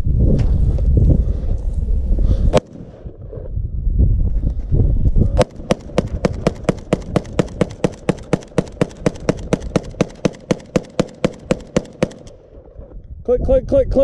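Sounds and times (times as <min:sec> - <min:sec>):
rifle firing rapid shots: 0:05.4 - 0:12.4.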